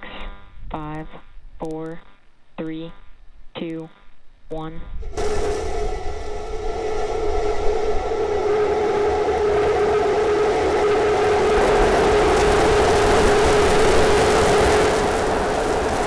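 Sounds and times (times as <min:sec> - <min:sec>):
rocket engines roaring: 0:05.0 - 0:16.0.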